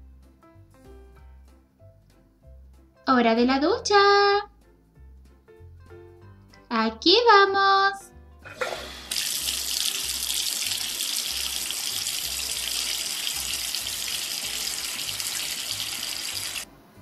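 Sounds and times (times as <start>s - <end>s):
shower water spraying: 8.6s - 16.7s.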